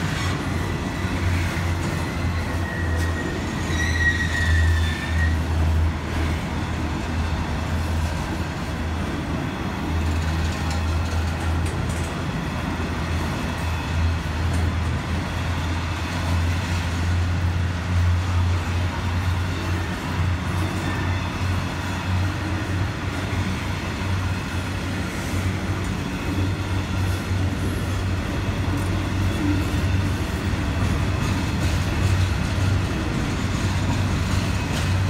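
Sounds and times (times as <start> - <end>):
high wheel squeal: 0.0 - 5.7
freight train rumbling past: 0.0 - 35.0.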